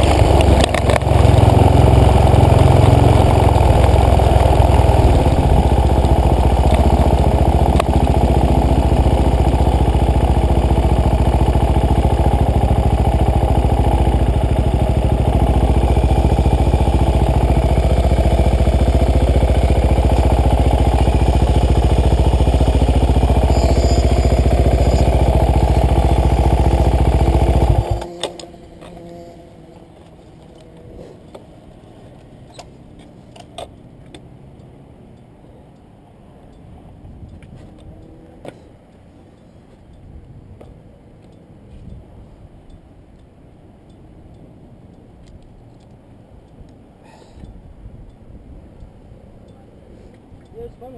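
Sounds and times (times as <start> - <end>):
motorcycle engine running: 0.0 - 31.9.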